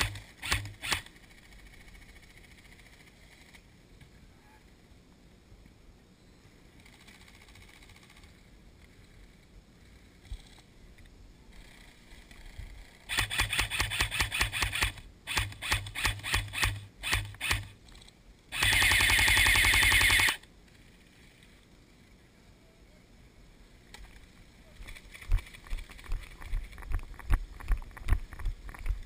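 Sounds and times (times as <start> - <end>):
airsoft rifle automatic bursts: 0.0 - 3.6, 6.8 - 8.4, 13.0 - 17.8, 18.5 - 20.5.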